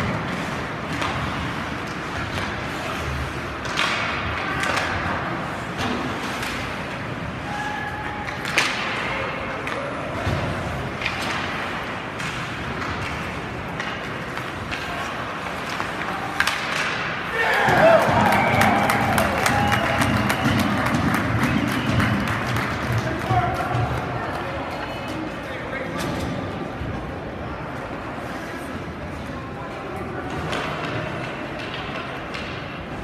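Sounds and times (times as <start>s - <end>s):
skates on ice: 0.0s - 25.9s
hockey sticks and puck clacking: 0.0s - 27.1s, 28.8s - 33.0s
indistinct shouting: 17.3s - 20.2s.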